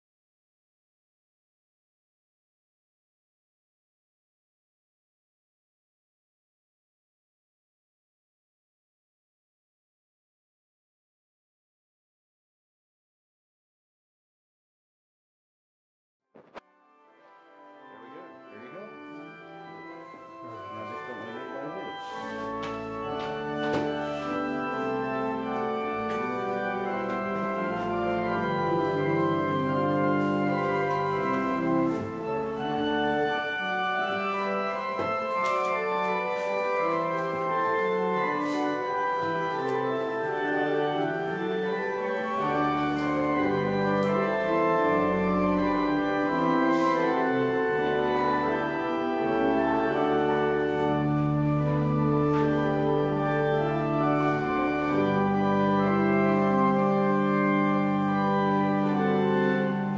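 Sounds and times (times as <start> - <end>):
organ playing slow chords: 17.0 - 59.9.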